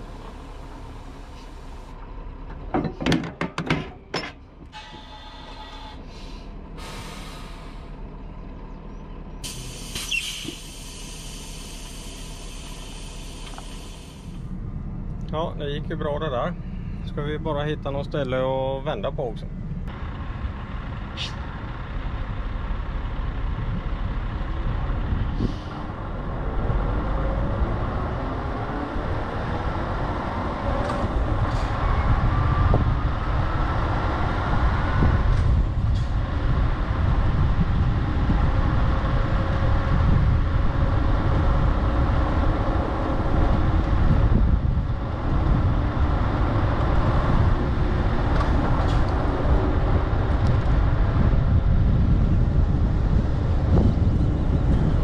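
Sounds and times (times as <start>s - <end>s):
diesel truck engine running: 0.0s - 55.0s
sharp air hisses: 9.4s - 14.4s.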